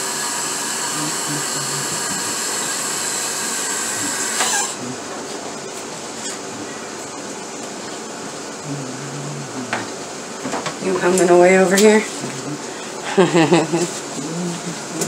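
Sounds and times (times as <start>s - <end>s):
electric motor whirring whine: 0.0s - 5.0s.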